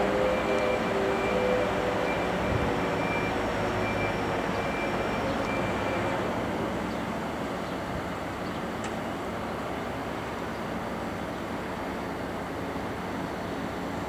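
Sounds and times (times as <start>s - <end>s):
passing vehicles rumbling: 0.0s - 8.2s.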